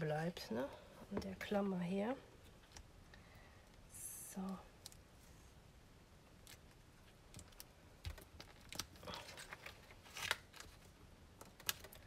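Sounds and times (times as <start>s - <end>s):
paper and plastic rustling: 7.5s - 11.0s.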